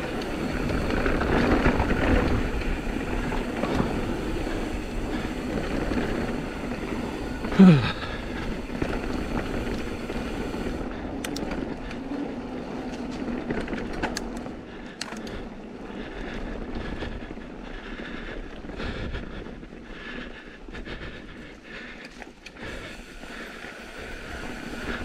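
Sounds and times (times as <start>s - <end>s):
bike rattles and knocks: 0.0s - 15.6s
wind buffeting microphone: 0.0s - 21.7s
bike tyre rumble on dirt: 0.0s - 25.0s.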